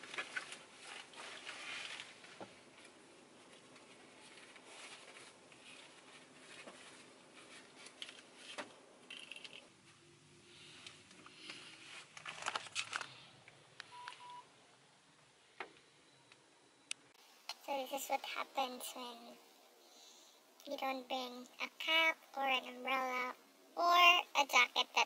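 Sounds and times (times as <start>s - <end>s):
clothing rustling: 0.0s - 10.0s.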